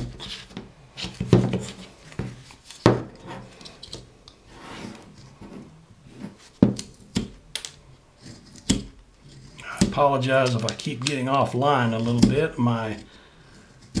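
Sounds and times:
knife scraping wood: 0.0s - 7.3s, 8.2s - 10.8s, 12.0s - 14.0s
wood cracking: 9.6s - 12.4s.

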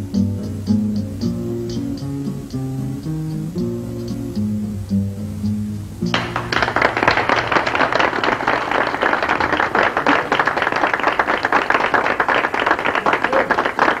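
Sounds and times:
audience applauding: 6.1s - 14.0s.

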